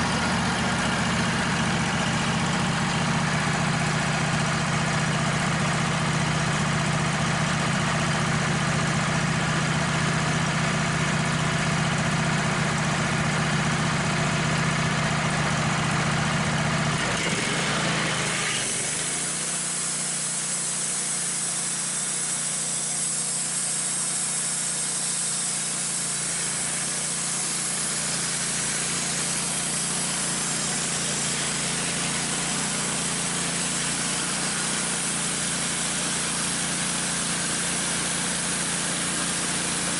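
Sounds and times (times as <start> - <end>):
band saw blade cutting log: 0.0 - 4.5, 14.2 - 39.9
sawmill engine idling: 0.0 - 39.9.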